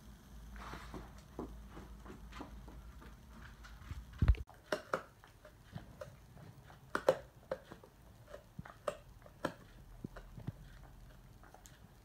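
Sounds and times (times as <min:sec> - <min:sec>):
dog chewing: 0:04.2 - 0:12.0.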